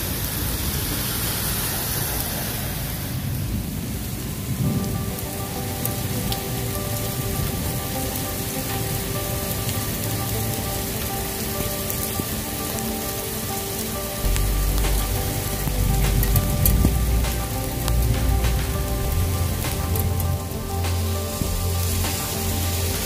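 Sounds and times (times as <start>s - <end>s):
hail and rain on grass: 0.0s - 23.0s
hailstones ticking: 2.0s - 23.0s
held musical notes: 4.5s - 23.0s
low rumble: 14.2s - 23.0s.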